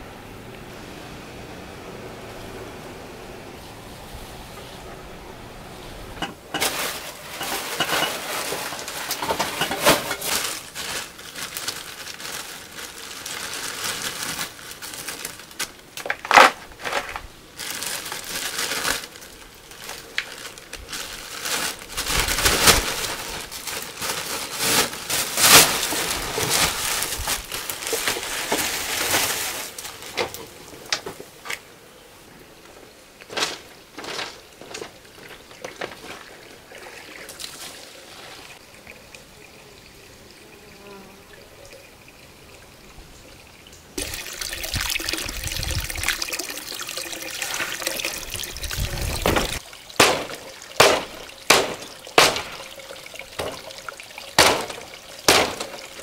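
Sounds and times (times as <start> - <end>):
plastic bags rustling: 5.6 - 31.6, 33.1 - 38.6, 44.0 - 56.0.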